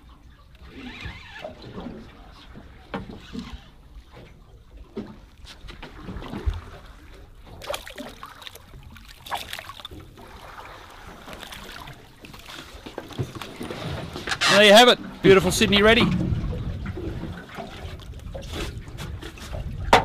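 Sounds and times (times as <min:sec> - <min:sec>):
water splashing against boat hull: 0:00.0 - 0:20.0
knocks on boat: 0:15.8 - 0:17.3, 0:19.0 - 0:20.0.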